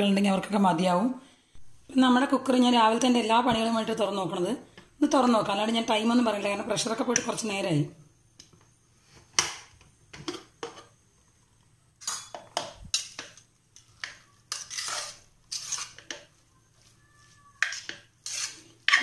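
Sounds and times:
spoon scraping a pot: 12.0 - 19.0.

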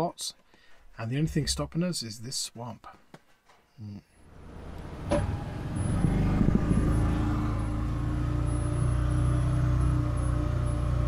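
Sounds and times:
engine running under load: 4.2 - 11.0.

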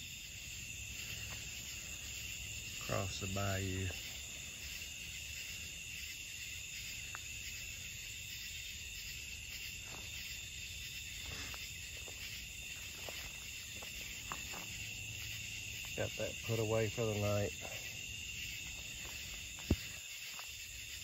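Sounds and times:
crickets and insects trilling: 0.0 - 21.0
footsteps on leaf litter: 11.2 - 14.8.

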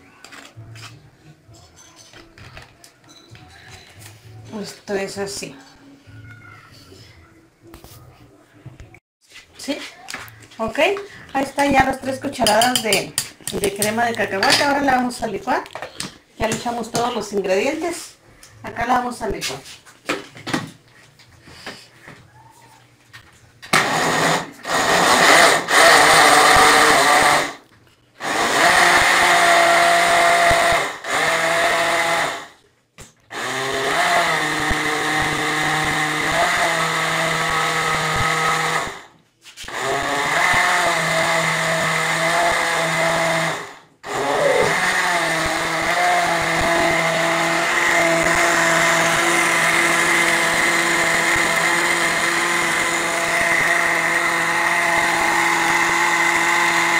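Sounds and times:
blender motor running: 23.7 - 27.6, 28.2 - 32.6, 33.3 - 39.1, 39.7 - 56.9.

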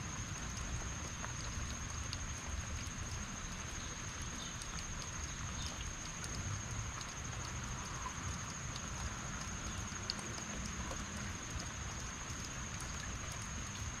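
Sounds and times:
drips ticking: 0.0 - 14.0
heavy rain falling: 0.0 - 14.0.

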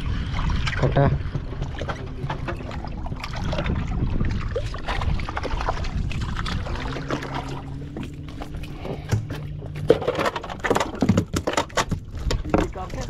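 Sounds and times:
boat motor running: 0.0 - 13.0
short knocks and clatter: 9.0 - 13.0.

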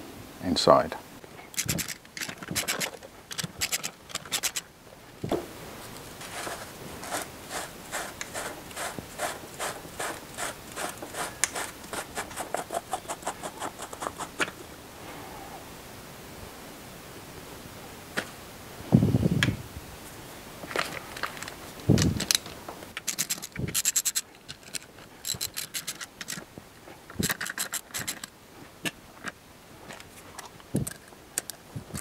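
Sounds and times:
socket ratchet clicking: 1.6 - 4.6, 23.0 - 26.4, 27.2 - 28.3.

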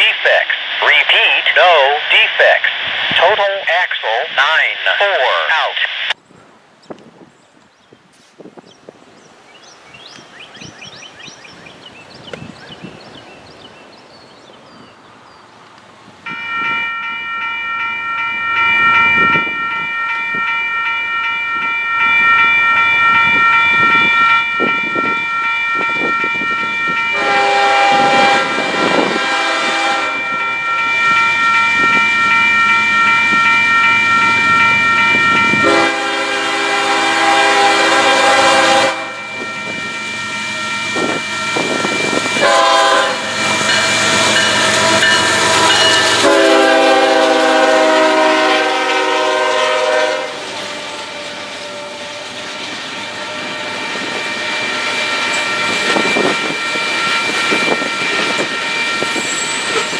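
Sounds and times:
freight train passing: 0.0 - 59.9
train air horn blasts: 27.0 - 30.6, 35.4 - 52.4
train wheels clacking: 50.5 - 59.9.

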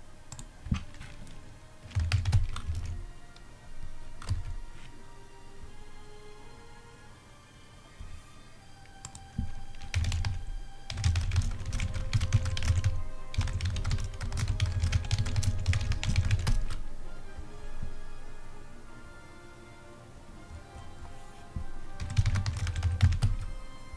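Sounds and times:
background music: 0.0 - 23.9
fast keyboard typing: 0.3 - 3.0, 4.2 - 4.6, 9.0 - 16.8, 21.9 - 23.6.

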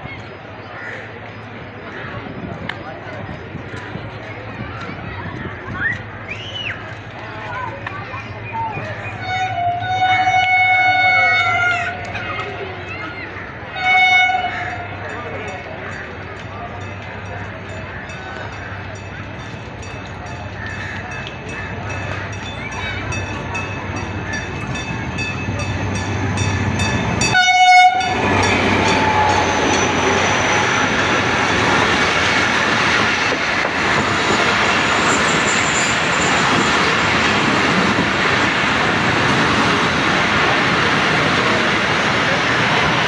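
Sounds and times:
train wheels rumbling on rails: 0.0 - 43.0
train horn blast: 9.2 - 12.1, 13.7 - 14.9, 27.2 - 30.9.

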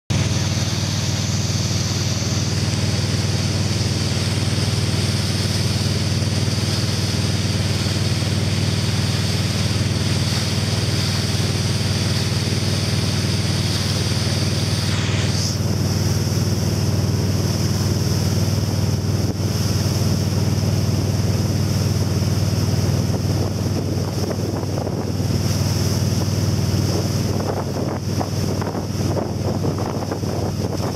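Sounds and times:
boat engine droning: 0.1 - 30.9
churning wake rushing: 0.1 - 30.9
wind on microphone: 22.0 - 30.9.

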